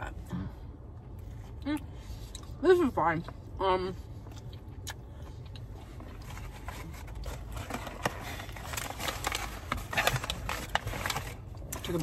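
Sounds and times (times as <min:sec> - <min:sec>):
low rumble in car cabin: 0:00.0 - 0:12.0
chewing crispy food: 0:04.2 - 0:12.0.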